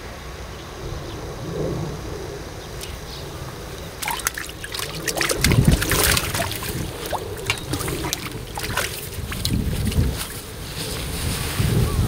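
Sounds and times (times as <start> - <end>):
fish thrashing and splashing: 2.8 - 10.5.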